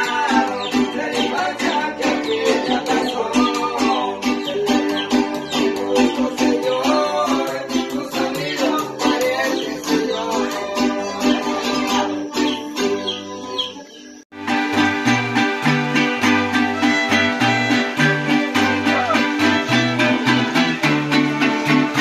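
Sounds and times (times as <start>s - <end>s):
acoustic guitars strumming: 0.0s - 22.0s
violins playing melody: 14.4s - 22.0s.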